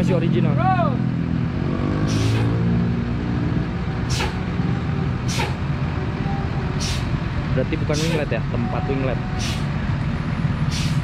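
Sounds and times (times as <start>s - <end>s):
bus diesel engine running: 0.0s - 11.0s
compressed air hisses: 2.1s - 2.5s, 4.1s - 4.4s, 5.3s - 5.6s, 6.8s - 7.1s, 9.4s - 9.7s, 10.7s - 11.0s.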